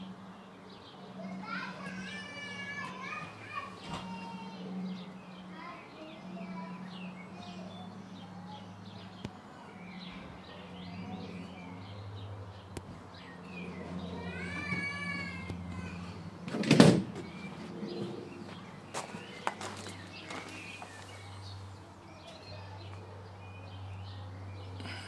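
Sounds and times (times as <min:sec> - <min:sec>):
small birds chirping: 0:00.0 - 0:25.0
loud rustling thump: 0:16.5 - 0:17.3.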